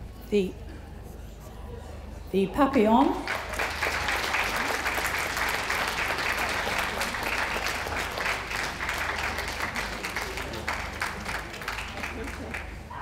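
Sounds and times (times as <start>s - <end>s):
audience applauding: 3.2s - 12.9s.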